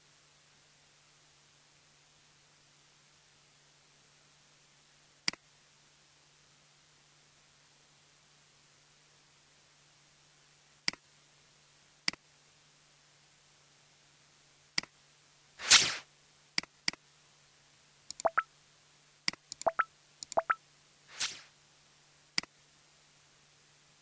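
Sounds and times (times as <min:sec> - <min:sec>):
faint steady hum: 0:00.0 - 0:24.0
computer mouse clicks: 0:18.1 - 0:18.4, 0:19.3 - 0:21.4.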